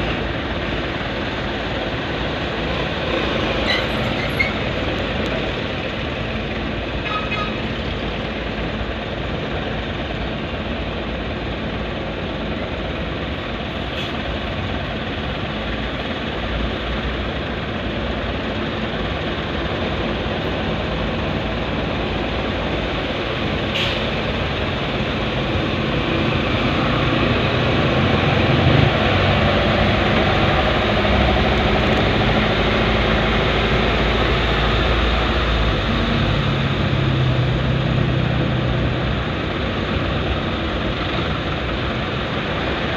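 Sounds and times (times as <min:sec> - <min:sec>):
traffic engine and road noise: 0:00.0 - 0:42.9
deep engine hum: 0:14.4 - 0:42.9.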